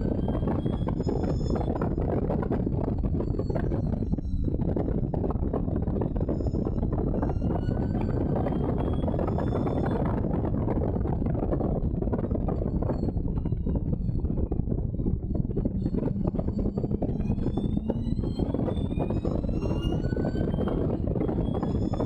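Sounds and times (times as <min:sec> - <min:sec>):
wind noise: 0:00.0 - 0:22.0
racing car engine: 0:15.5 - 0:22.0.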